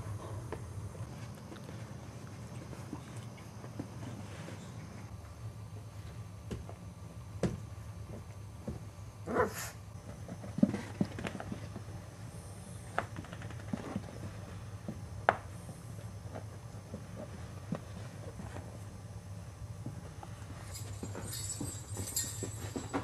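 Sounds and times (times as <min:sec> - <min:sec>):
puppies scuffling in play: 0:00.0 - 0:05.1, 0:10.0 - 0:12.2, 0:15.9 - 0:19.0, 0:19.8 - 0:23.0.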